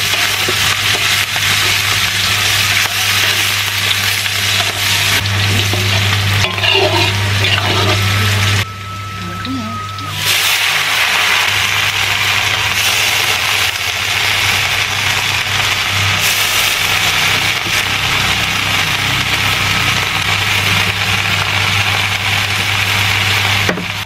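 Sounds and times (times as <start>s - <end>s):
vegetables sizzling in oil: 0.0s - 24.0s
low steady hum: 0.1s - 17.0s.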